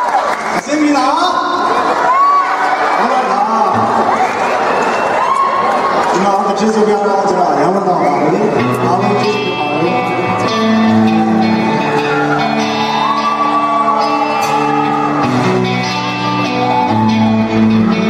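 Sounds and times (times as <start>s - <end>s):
live band music over a pa: 7.2s - 18.0s.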